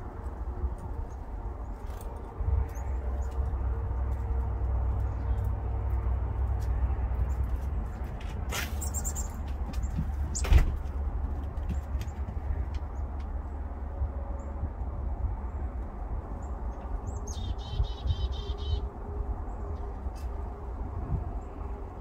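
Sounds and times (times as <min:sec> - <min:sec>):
steady low rumble: 0:00.0 - 0:22.0
small songbirds chirping: 0:08.7 - 0:10.6, 0:15.4 - 0:20.3.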